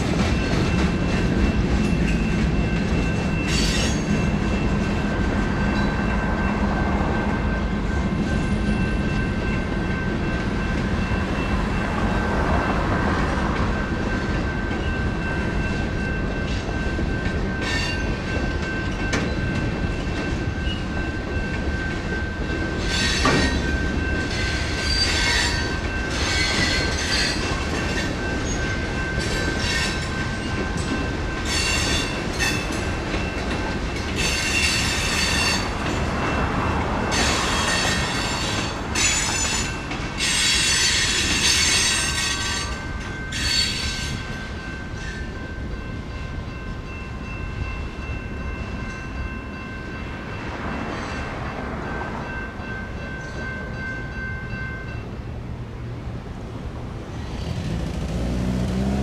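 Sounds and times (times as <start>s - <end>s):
crossing bells ringing: 0.0s - 55.8s
train wheels rumbling over rails: 0.0s - 59.0s
wheels squealing and clanking: 0.2s - 6.5s, 22.8s - 30.4s, 34.2s - 36.0s, 37.1s - 44.2s.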